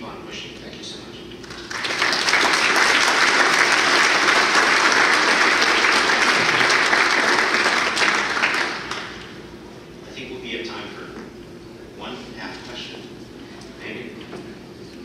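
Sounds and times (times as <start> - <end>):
audience applauding: 1.4 - 9.3.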